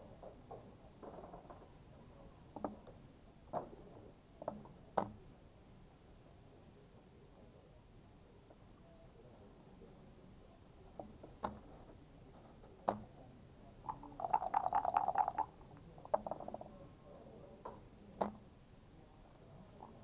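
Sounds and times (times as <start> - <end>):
dice rattling in a cup: 13.9 - 15.5, 16.1 - 16.7
game pieces clacking: 13.9 - 15.5, 16.1 - 16.7.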